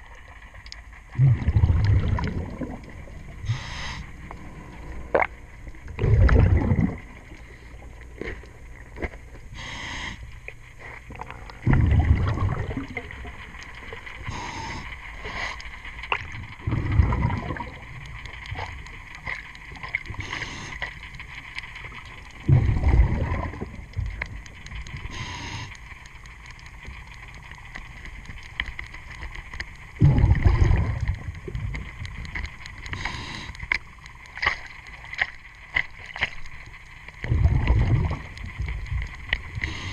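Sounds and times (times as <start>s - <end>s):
scuba regulator exhale bubbling: 1.1s - 8.5s, 9.5s - 10.3s, 10.9s - 15.6s, 16.6s - 17.8s, 22.4s - 24.1s, 30.0s - 31.8s, 37.2s - 38.5s
regulator inhale hiss: 3.4s - 4.3s, 9.5s - 11.6s, 14.2s - 15.8s, 20.1s - 21.1s, 25.0s - 26.0s, 32.8s - 33.8s, 39.6s - 39.9s.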